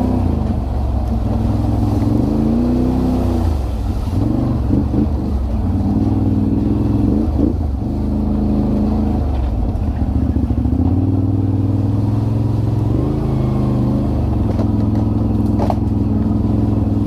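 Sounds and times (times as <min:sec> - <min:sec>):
quad bike engine running: 0:00.0 - 0:17.0
short knocks from rough trail: 0:14.4 - 0:16.4.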